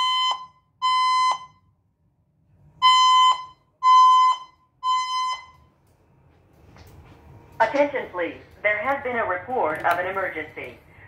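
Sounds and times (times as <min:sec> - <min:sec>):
fire alarm beeps: 0:00.0 - 0:01.8, 0:02.8 - 0:05.8.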